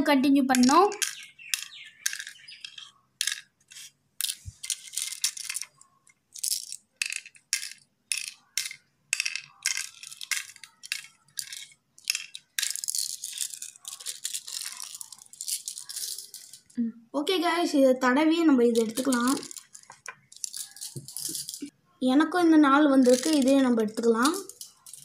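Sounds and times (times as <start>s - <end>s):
shells clicking on a wooden board: 0.5s - 16.7s.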